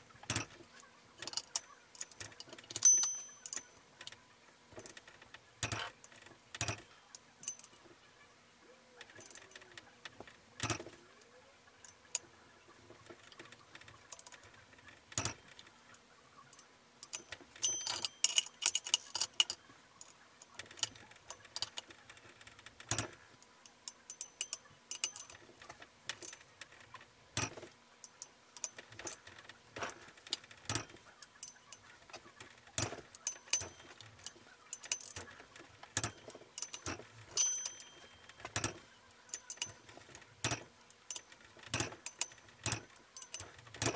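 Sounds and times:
wrench metallic clicks: 0.3s - 0.6s, 1.2s - 4.2s, 4.8s - 7.8s, 10.6s - 10.9s, 15.1s - 15.6s, 16.5s - 23.2s, 23.9s - 25.5s, 27.4s - 43.9s.

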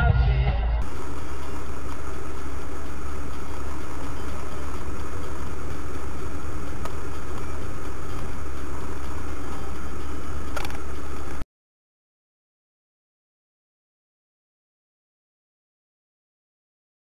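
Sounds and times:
car engine drone: 0.0s - 11.4s
road noise inside car: 0.7s - 11.4s.

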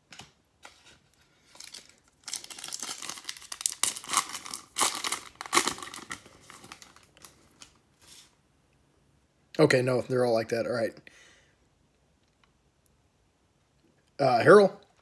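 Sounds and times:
foil wrapper crinkling and tearing: 1.4s - 7.8s.

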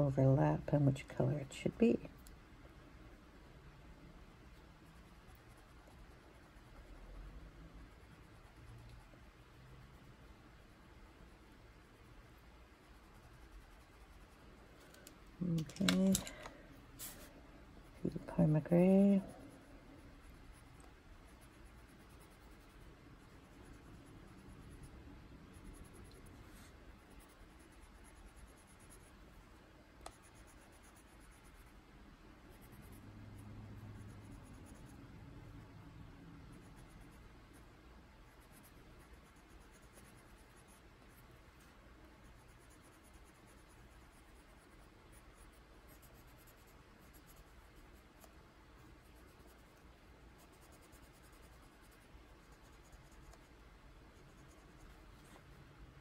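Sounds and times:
pencil scratching on paper: 11.8s - 14.4s, 17.0s - 31.8s, 32.5s - 35.0s, 38.2s - 55.5s.

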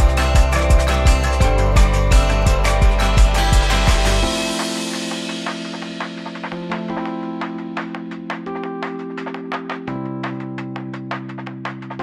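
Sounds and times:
held low chord: 0.0s - 7.1s.

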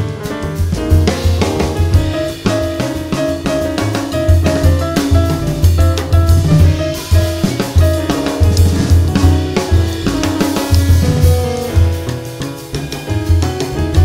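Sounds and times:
busy drum kit: 0.0s - 14.0s
jazz band playing: 0.0s - 14.0s.

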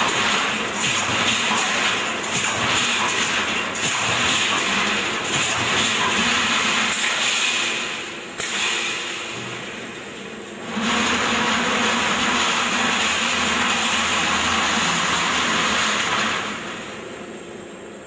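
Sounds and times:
welding machine running: 0.0s - 17.3s
sharp clack: 8.4s - 9.0s.

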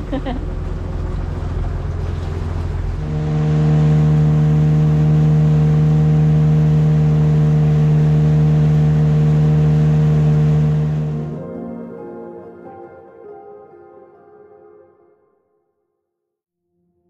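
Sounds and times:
boat motor droning: 0.0s - 11.4s
rushing water noise: 0.0s - 11.4s.

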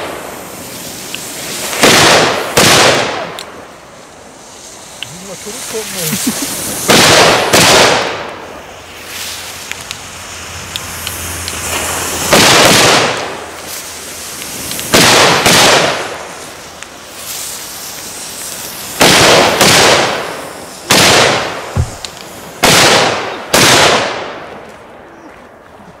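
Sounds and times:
firecrackers exploding: 0.0s - 25.0s
sharp bangs with echo: 1.7s - 3.3s, 6.8s - 8.4s, 12.3s - 13.4s, 14.9s - 16.2s, 19.0s - 24.4s.

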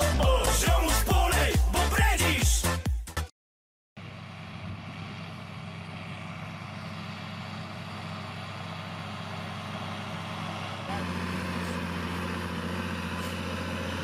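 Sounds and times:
tractor diesel engine running: 4.0s - 14.0s.

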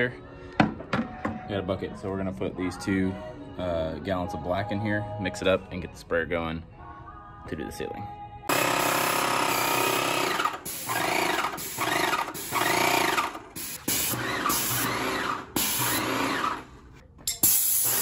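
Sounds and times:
paint sprayer pump whining: 8.5s - 18.0s.

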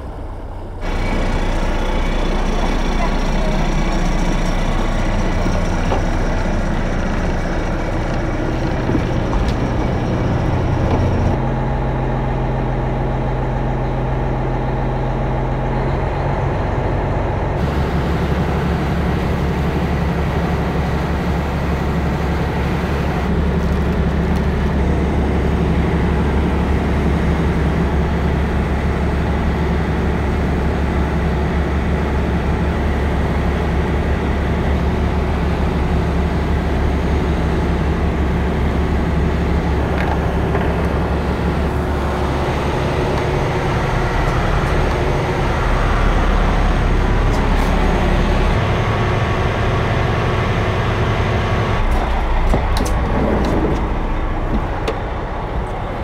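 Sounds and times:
boat engine running: 0.0s - 56.0s
water rushing from hull: 17.0s - 56.0s.

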